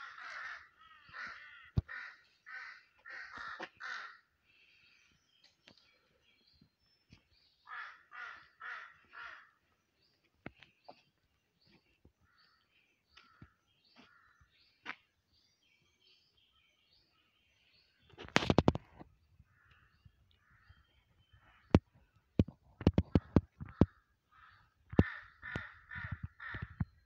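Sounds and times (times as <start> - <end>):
crow cawing: 0.0 - 4.3, 7.6 - 9.6, 23.6 - 26.9.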